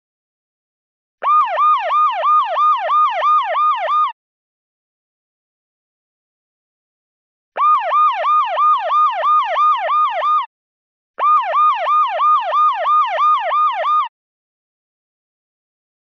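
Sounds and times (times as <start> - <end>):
electronic siren alarm yelping: 1.2 - 4.2, 7.6 - 10.5, 11.2 - 14.1.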